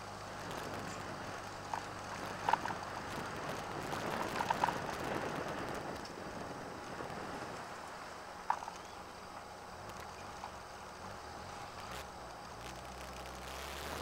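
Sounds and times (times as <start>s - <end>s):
faint engine hum: 0.0s - 14.0s
tyre noise: 8.4s - 14.0s.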